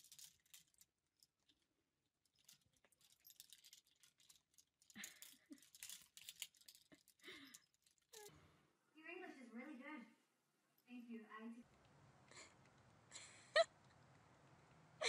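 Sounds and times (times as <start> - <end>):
plastic hangers rattling on rail: 0.0 - 0.8, 2.4 - 7.2.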